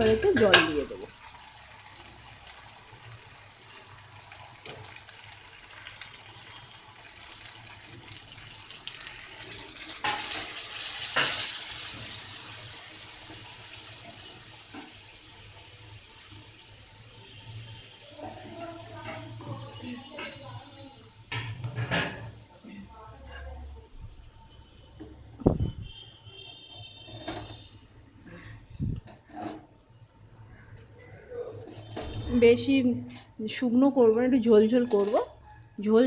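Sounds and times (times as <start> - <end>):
water hissing in hot oil: 0.0 - 23.2.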